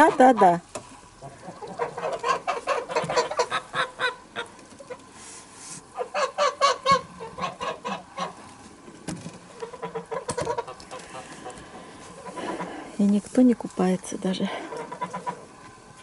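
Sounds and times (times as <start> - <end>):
geese honking: 1.2 - 5.1, 5.9 - 8.5, 9.5 - 12.9, 14.5 - 15.6.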